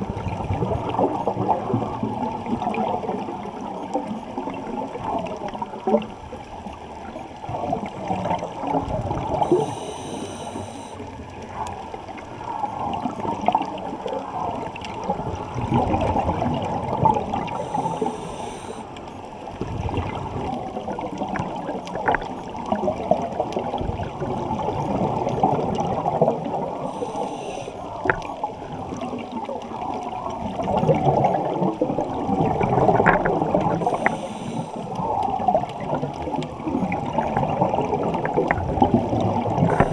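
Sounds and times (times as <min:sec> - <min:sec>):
underwater bubbling and gurgling: 0:00.0 - 0:39.9.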